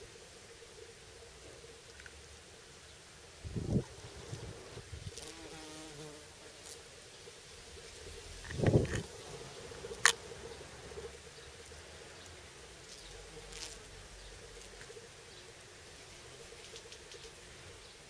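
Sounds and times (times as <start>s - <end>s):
bumblebees buzzing: 3.4s - 6.9s, 12.1s - 16.6s.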